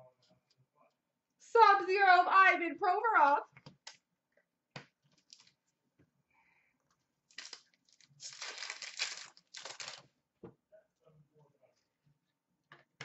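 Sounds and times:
foil wrapper crinkling and tearing: 5.3s - 5.5s, 7.3s - 10.1s.

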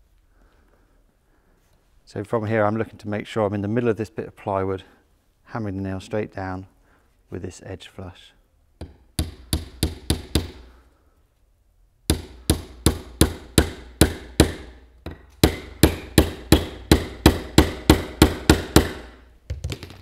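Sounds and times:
hammer striking nail into wood: 8.8s - 10.7s, 12.1s - 19.2s.

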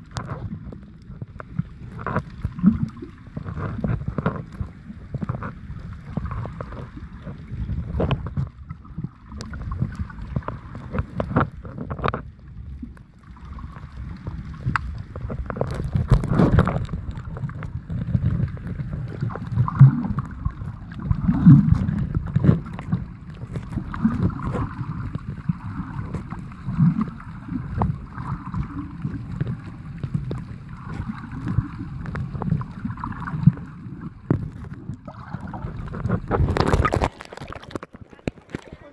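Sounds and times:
muffled underwater sloshing: 0.0s - 38.9s.

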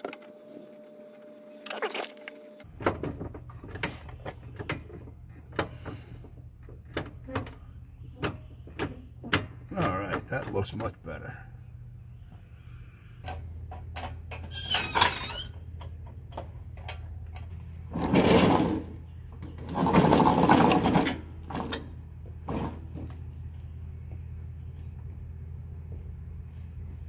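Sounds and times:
steady low hum: 0.0s - 14.4s, 21.1s - 27.0s.

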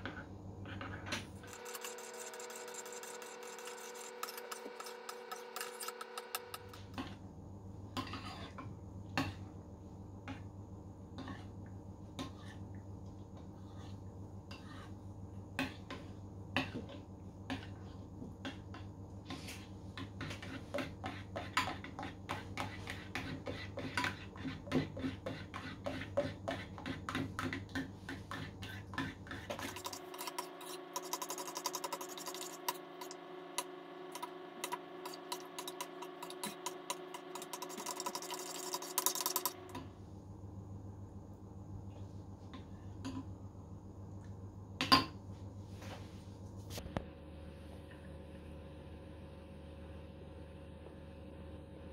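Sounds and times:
metal spoon scraping a bowl: 0.7s - 7.0s, 8.0s - 8.6s, 28.1s - 33.2s, 34.2s - 39.6s.

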